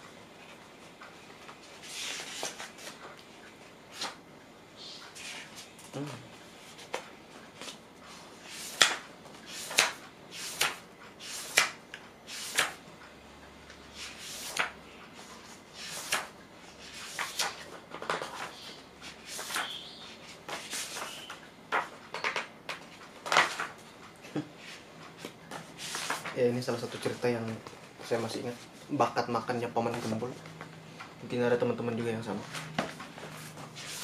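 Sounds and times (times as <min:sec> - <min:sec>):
magazine pages turning: 0:25.6 - 0:28.2.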